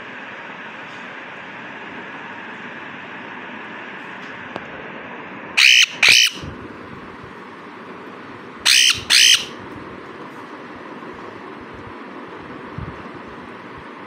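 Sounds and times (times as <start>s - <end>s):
parrot squawking: 5.6s - 6.5s, 8.6s - 9.6s.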